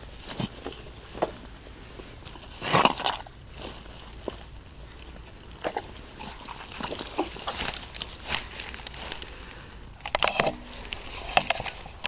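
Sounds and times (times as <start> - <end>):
rain gear rustling: 3.5 - 12.0.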